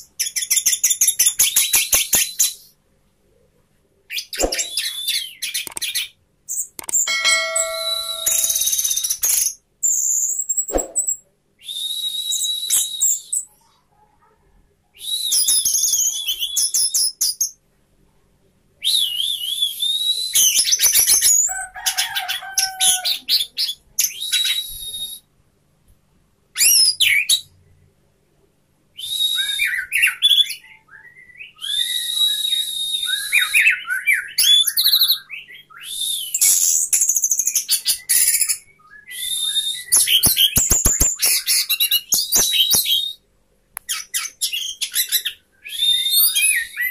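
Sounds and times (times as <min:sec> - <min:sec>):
bird singing whistles and trills: 0:09.8 - 0:13.5, 0:15.0 - 0:17.5, 0:18.8 - 0:21.4, 0:23.6 - 0:25.3, 0:29.0 - 0:43.2, 0:43.9 - 0:46.9.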